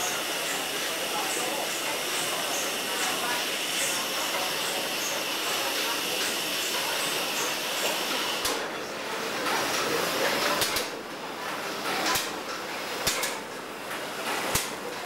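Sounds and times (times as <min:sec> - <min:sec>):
steam engine hiss and whir: 0:00.0 - 0:08.7.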